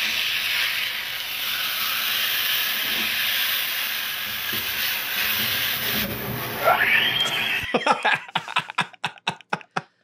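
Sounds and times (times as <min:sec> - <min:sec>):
patty sizzling in grease: 0:00.0 - 0:07.7.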